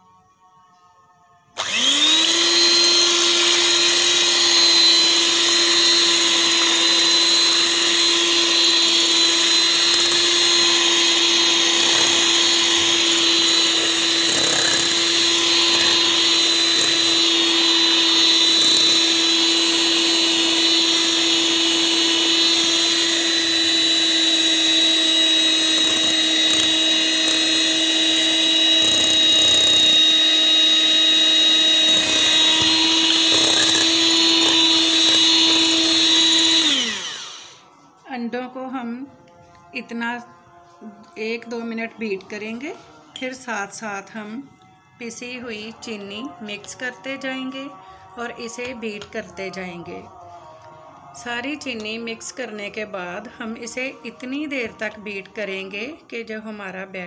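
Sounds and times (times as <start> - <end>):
electric hand mixer whine: 1.6 - 37.7.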